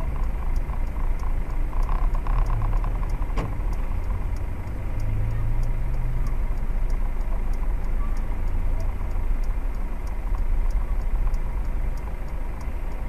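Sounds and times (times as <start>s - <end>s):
car engine idling: 0.0s - 13.0s
faint regular ticking: 0.0s - 13.0s
sharp click: 1.8s - 3.8s.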